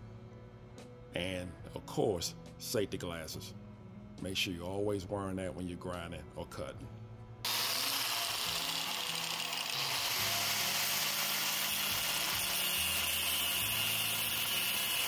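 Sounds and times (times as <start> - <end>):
angle grinder cutting metal: 7.4 - 15.0.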